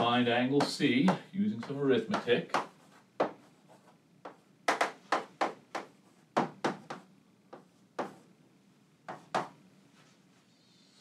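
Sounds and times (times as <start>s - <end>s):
chalk tapping and scraping on chalkboard: 0.0s - 8.3s, 9.1s - 9.6s.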